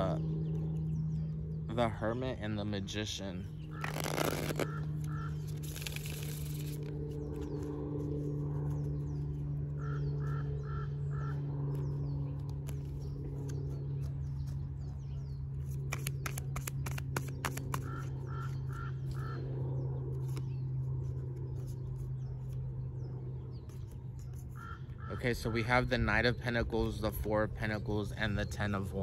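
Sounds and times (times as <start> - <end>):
small birds chirping: 0.0 - 29.0
steady low hum: 0.0 - 29.0
cards being shuffled: 3.7 - 8.8, 12.4 - 14.6, 15.6 - 18.1, 20.1 - 22.7, 23.7 - 24.6
crow cawing: 4.6 - 5.6, 9.8 - 11.4, 17.8 - 19.5, 24.6 - 25.2.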